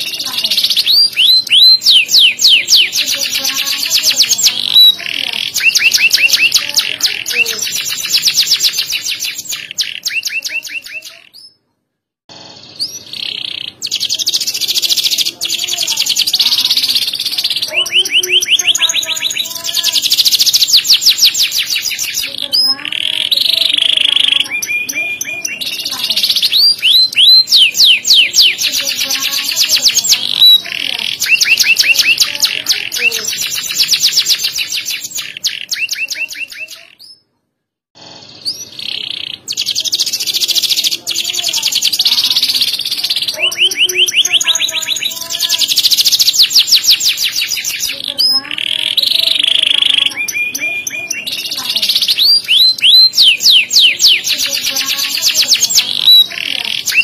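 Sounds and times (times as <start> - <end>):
canary singing trills: 0.0 - 11.7, 12.3 - 37.3, 38.0 - 57.0.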